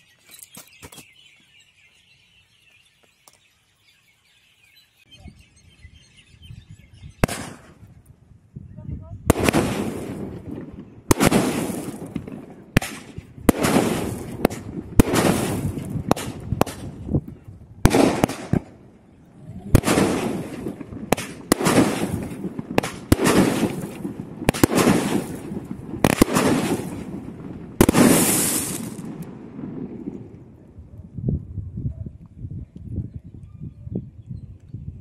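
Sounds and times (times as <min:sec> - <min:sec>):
fireworks shots firing: 0:07.2 - 0:07.8, 0:09.3 - 0:17.2, 0:17.8 - 0:19.0, 0:19.7 - 0:30.4
fizzing crackle of sparks: 0:19.7 - 0:29.4.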